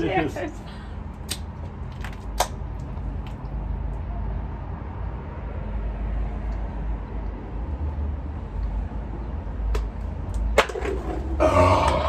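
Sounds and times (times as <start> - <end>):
people gulping beer: 11.3 - 12.0.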